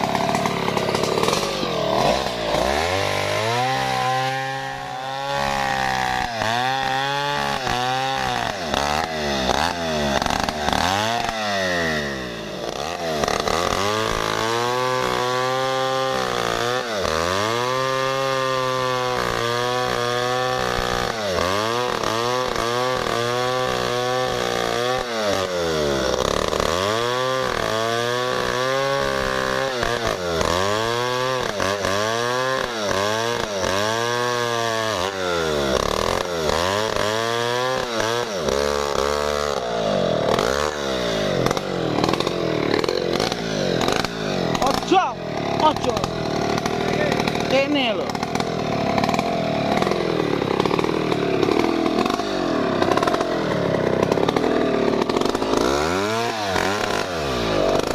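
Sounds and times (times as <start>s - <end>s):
chainsaw cutting a log: 0.0s - 57.9s.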